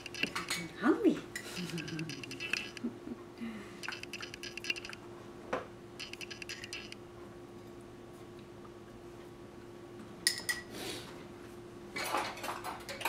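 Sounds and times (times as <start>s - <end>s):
spoon scraping in glass jar: 0.0s - 0.6s, 1.4s - 2.8s
faint steady hum: 0.0s - 13.0s.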